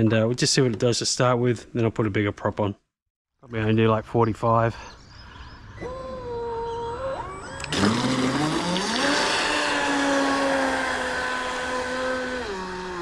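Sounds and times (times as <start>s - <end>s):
electric motor whining: 5.8s - 13.0s.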